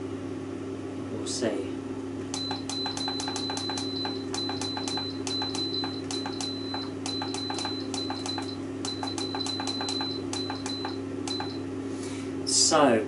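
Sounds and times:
oven fan humming: 0.0 - 13.0
control panel clicks: 2.3 - 11.6
short high beeps: 2.4 - 11.6.

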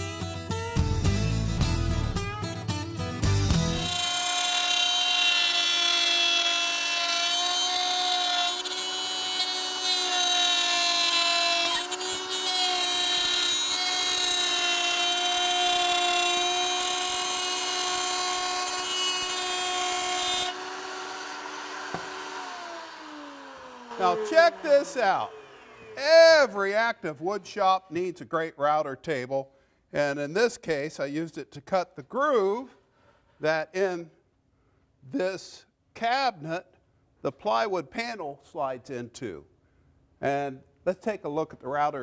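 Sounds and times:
router bit cutting board: 3.3 - 26.6
router motor whining: 3.5 - 26.4.

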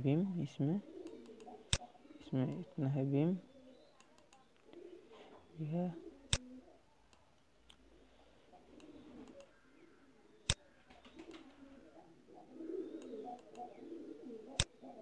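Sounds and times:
computer mouse click: 1.0 - 1.9, 4.0 - 4.8, 8.8 - 9.6, 13.0 - 13.7
low bird calls: 7.9 - 15.0.

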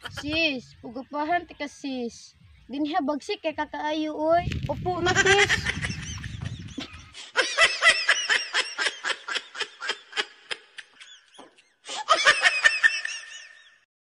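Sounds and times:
high-pitched giggling: 0.0 - 0.5, 5.0 - 13.8.

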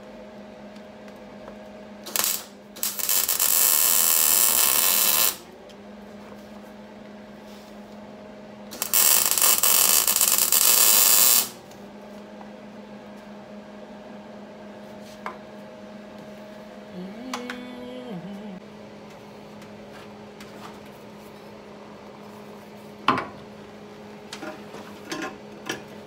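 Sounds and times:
welding arc hiss: 2.0 - 5.5, 8.7 - 11.6
low steady hum: 11.6 - 24.6.

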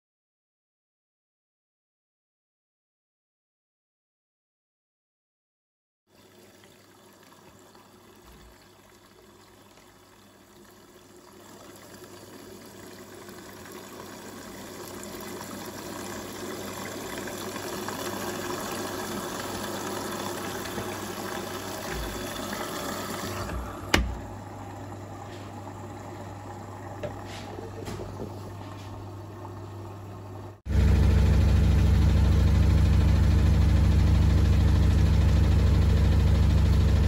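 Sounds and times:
liquid trickling into drawer: 19.8 - 24.4, 26.9 - 29.6.

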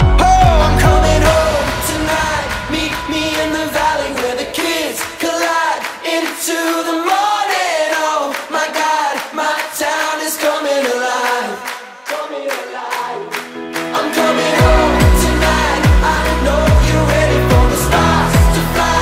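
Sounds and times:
song with singing voices: 0.0 - 19.0
steady beat: 14.2 - 19.0.

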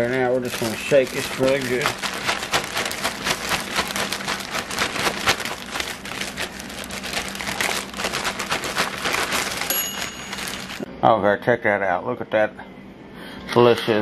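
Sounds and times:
pieces tumbling inside bag: 0.0 - 10.9
plastic bag crinkling: 0.0 - 10.9.

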